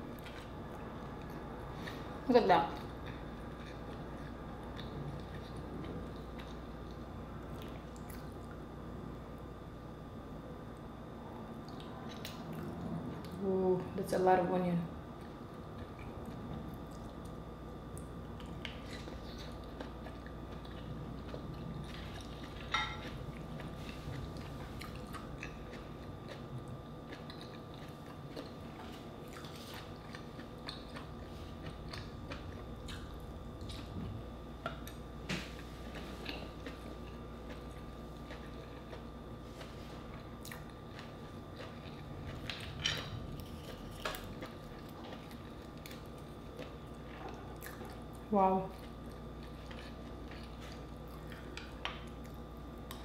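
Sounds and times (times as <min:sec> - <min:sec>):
chewing and biting mussels: 0:18.0 - 0:34.0, 0:34.8 - 0:53.0.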